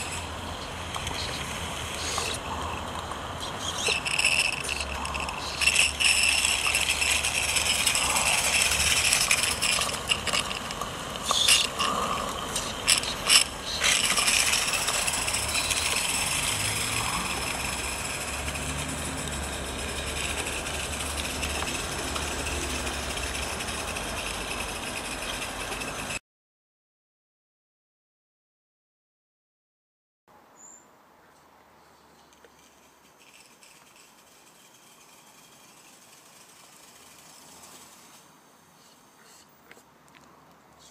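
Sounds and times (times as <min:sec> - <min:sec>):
mechanical rattling: 0:00.0 - 0:26.2, 0:32.3 - 0:38.3
steam hiss: 0:03.6 - 0:26.1
sharp clicks and knocks: 0:03.8 - 0:26.2.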